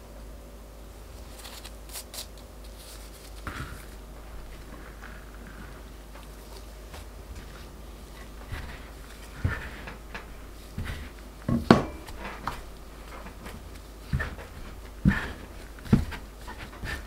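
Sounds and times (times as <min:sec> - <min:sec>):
scraper tapping: 0:06.2 - 0:17.0
bench scraper scraping dough: 0:06.4 - 0:17.0.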